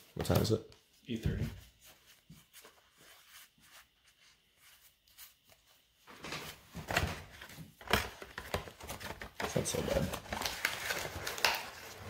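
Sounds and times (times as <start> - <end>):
cardboard and foil rustling: 6.1 - 12.0.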